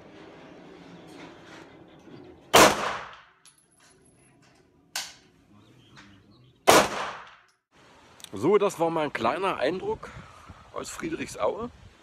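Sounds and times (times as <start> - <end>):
pistol shots: 2.5 - 3.3, 6.6 - 7.4.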